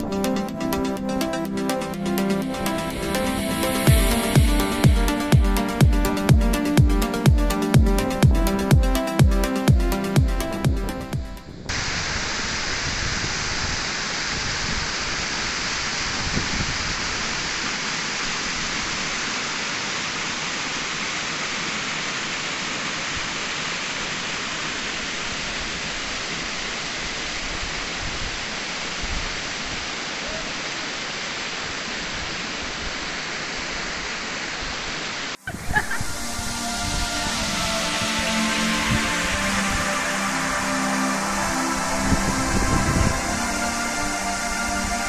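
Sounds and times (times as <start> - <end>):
water rushing over rocks: 11.7 - 45.0.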